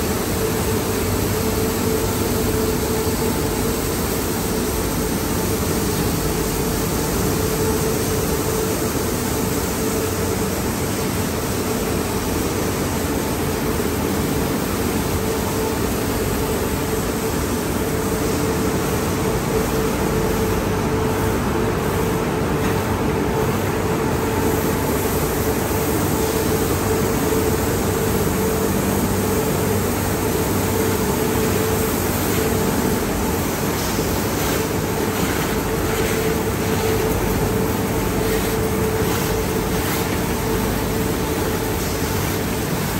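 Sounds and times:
machine hum: 0:00.0 - 0:42.9
water jets spraying: 0:23.4 - 0:42.9.

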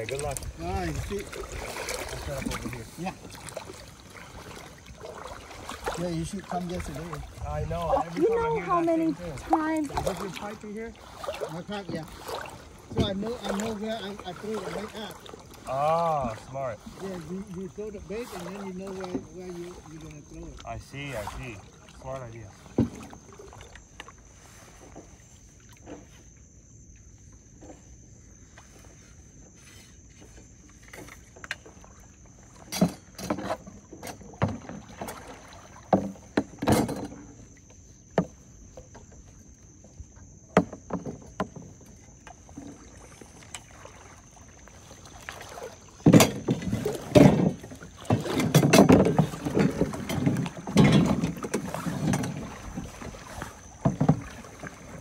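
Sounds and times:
water sloshing and splashing: 0:00.0 - 0:55.0
pipe knocking against floating tub: 0:11.4 - 0:13.8, 0:32.6 - 0:37.4, 0:38.1 - 0:39.2, 0:40.5 - 0:42.8, 0:46.0 - 0:55.0.

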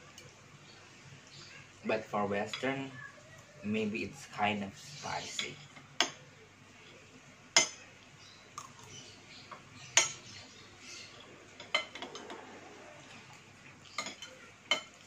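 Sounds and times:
cutlery clinking on glass bowl: 0:07.6 - 0:07.8, 0:10.0 - 0:10.3, 0:11.6 - 0:12.4, 0:13.8 - 0:15.0.

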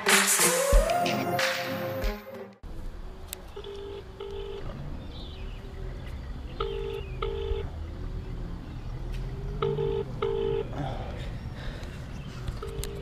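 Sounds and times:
phone ringback tone beeps: 0:03.6 - 0:04.6, 0:06.6 - 0:07.6, 0:09.6 - 0:10.6, 0:12.6 - 0:13.0.

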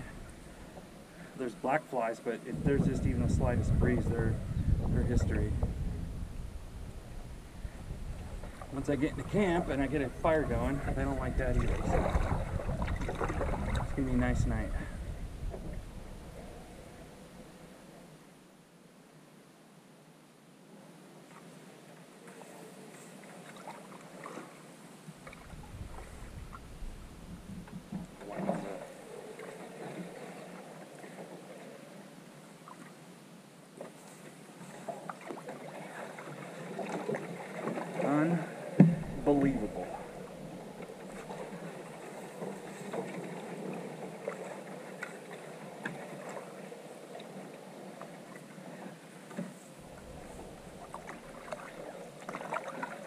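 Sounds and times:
paddle splashing in water: 0:07.2 - 0:14.3, 0:22.2 - 0:33.0, 0:33.8 - 0:53.0
small splashes and drips: 0:50.8 - 0:53.0.

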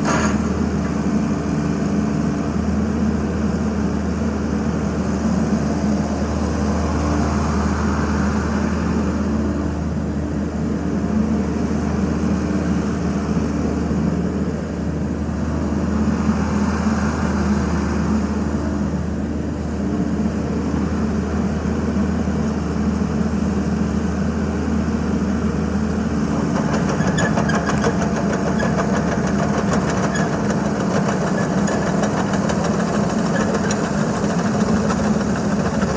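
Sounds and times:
excavator tracks rattling: 0:00.0 - 0:01.1, 0:25.9 - 0:35.9
excavator diesel engine running: 0:00.0 - 0:35.9.

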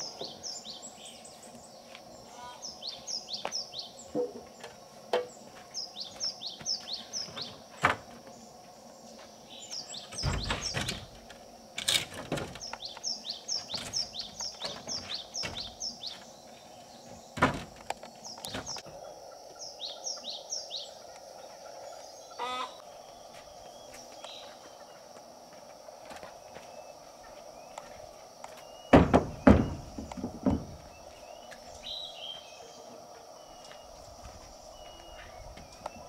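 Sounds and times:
steady background hum: 0:00.0 - 0:36.0
small bird chirping: 0:12.6 - 0:17.1
sharp knocks: 0:28.9 - 0:30.8.

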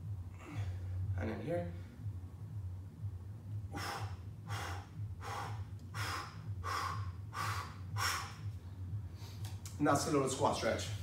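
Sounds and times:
steady low hum: 0:00.0 - 0:11.0
man breathing hard: 0:00.2 - 0:01.1, 0:03.6 - 0:09.6.

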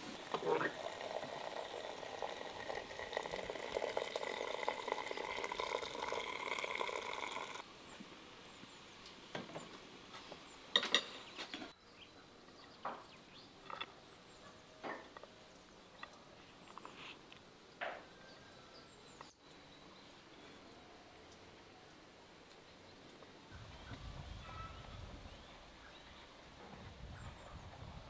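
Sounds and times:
dishes clinking: 0:10.7 - 0:11.7.

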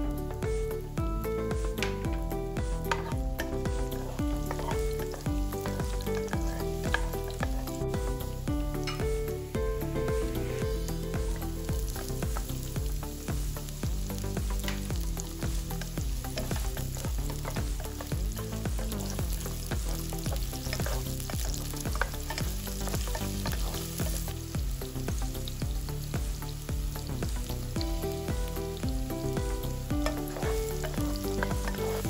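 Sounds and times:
food sizzling in a frying pan: 0:00.0 - 0:32.0
utensil scraping a pan: 0:02.8 - 0:08.2, 0:09.9 - 0:13.2, 0:14.2 - 0:24.4, 0:29.2 - 0:32.0.

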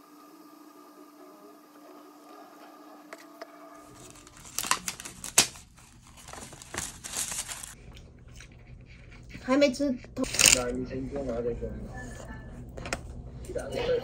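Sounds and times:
plastic packaging crinkling: 0:03.9 - 0:07.8.

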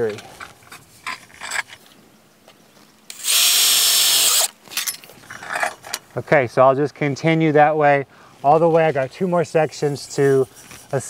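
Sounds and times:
power drill driving screw: 0:03.1 - 0:04.6.

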